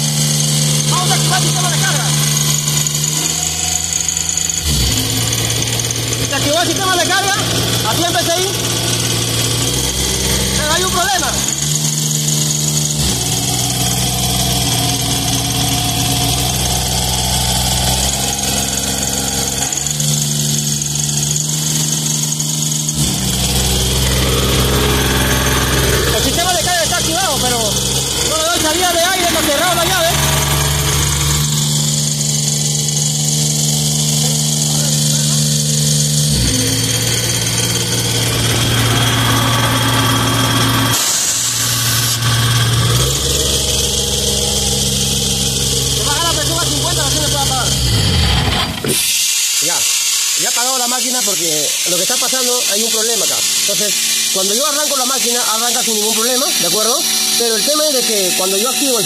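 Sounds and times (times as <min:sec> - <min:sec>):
diesel engine hunting: 0:00.0 - 0:59.0.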